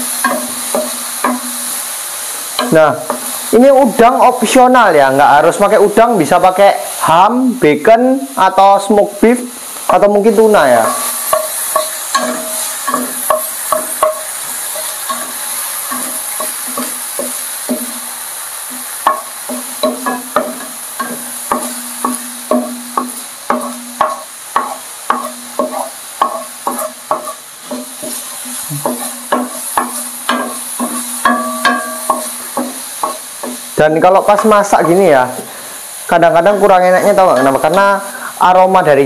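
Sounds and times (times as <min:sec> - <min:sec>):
spatula knocking and scraping pan: 0:00.0 - 0:01.8, 0:02.5 - 0:03.4, 0:10.8 - 0:18.1, 0:18.7 - 0:35.1, 0:37.0 - 0:37.9
food sizzling in oil: 0:00.0 - 0:39.0.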